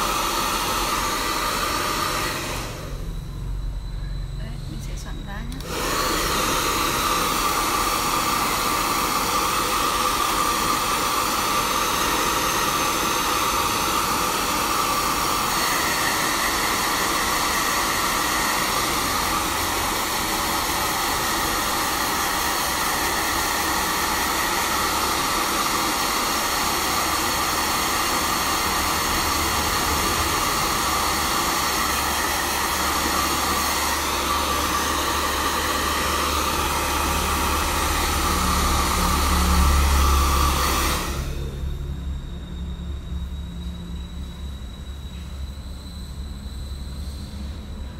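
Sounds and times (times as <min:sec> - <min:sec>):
hair dryer blowing: 0:00.0 - 0:03.4, 0:04.4 - 0:42.0
higher whine: 0:00.0 - 0:22.4, 0:23.2 - 0:47.9.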